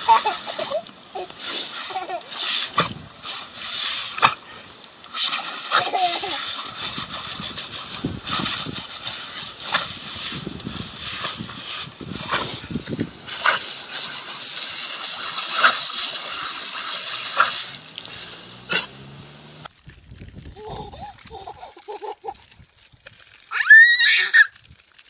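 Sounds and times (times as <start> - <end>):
hose spray nozzle hissing: 0.0 - 24.7
sharp water splashes: 0.0 - 25.0
dog biting and lapping water: 1.3 - 4.5, 5.1 - 19.0.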